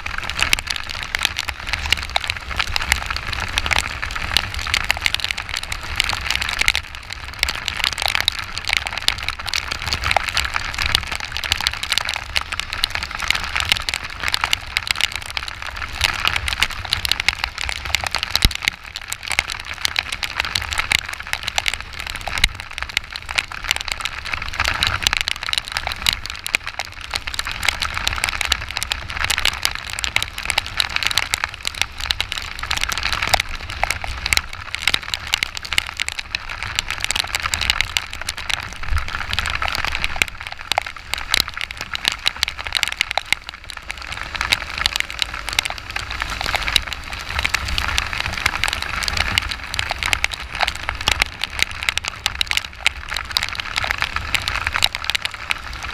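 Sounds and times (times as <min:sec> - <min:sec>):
heavy rain hitting camera: 0:00.0 - 0:55.9
low rumble: 0:41.1 - 0:51.6.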